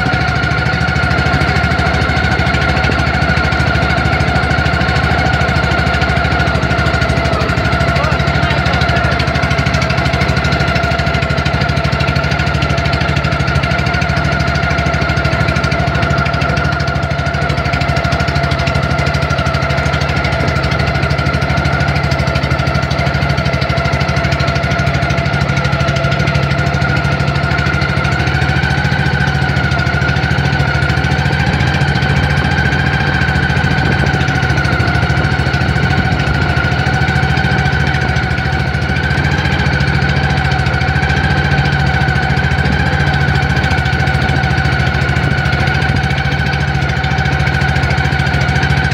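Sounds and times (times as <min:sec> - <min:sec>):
boat engine droning: 0:00.0 - 0:48.9.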